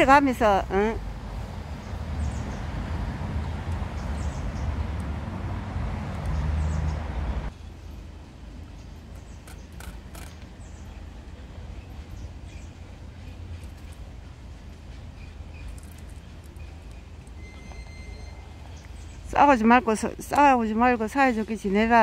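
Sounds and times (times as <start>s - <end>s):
passing vehicle rumble: 0.0s - 10.8s.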